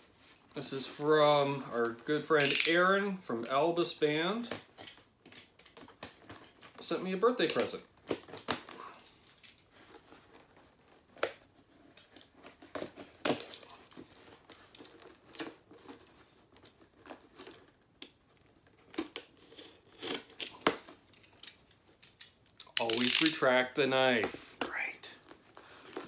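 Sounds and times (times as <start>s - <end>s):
tape and cardboard rustling: 4.2s - 26.0s
utility knife cutting tape: 19.4s - 20.7s.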